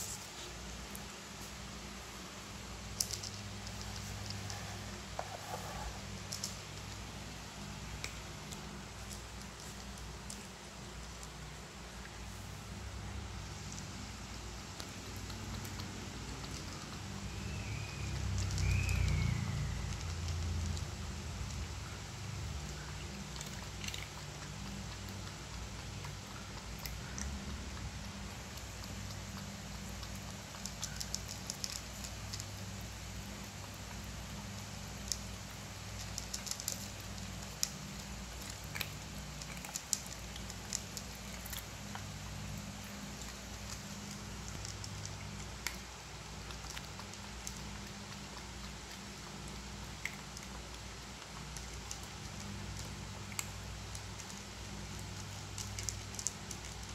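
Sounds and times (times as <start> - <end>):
cats chewing and licking: 0.0 - 56.9
steady low hum: 0.0 - 56.9
faint high chirps: 17.1 - 20.2.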